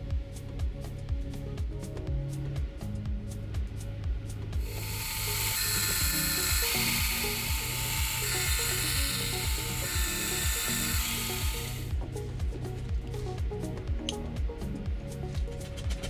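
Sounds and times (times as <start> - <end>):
milling machine cutting brass: 4.8 - 11.9.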